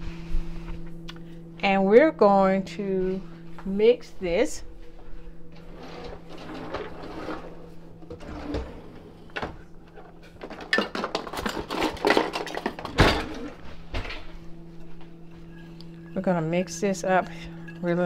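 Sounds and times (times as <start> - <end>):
steady low hum: 0.0 - 18.0
kitchen utensils clattering: 5.6 - 13.6.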